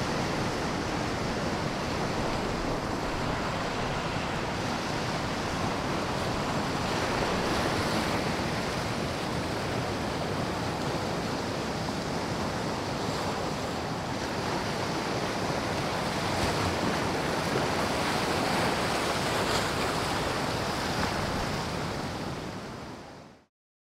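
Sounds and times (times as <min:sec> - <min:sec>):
wind buffeting microphone: 0:00.0 - 0:12.8
sea waves breaking over rocks: 0:00.0 - 0:23.3.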